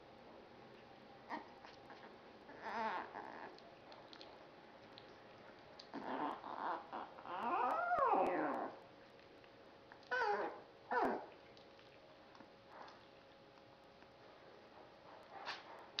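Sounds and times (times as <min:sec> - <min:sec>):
puppy whimpering and whining: 0:01.3 - 0:03.6, 0:05.9 - 0:08.8, 0:10.0 - 0:11.4.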